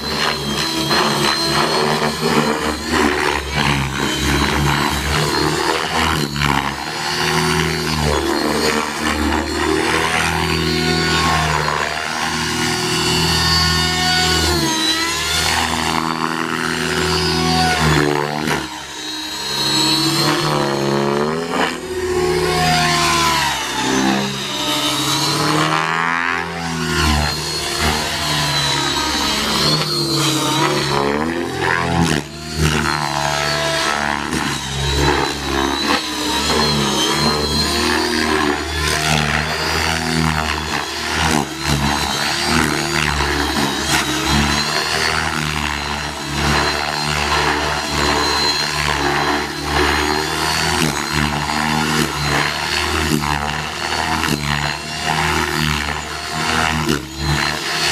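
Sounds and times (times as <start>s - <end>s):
helicopter rotor buzz: 0.0s - 57.9s
high motor whine: 0.0s - 57.9s.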